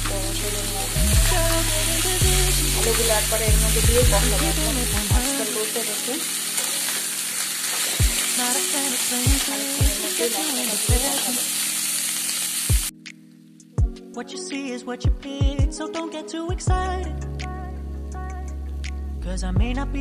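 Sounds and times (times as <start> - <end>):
potato wedges sizzling in oil: 0.0 - 12.9.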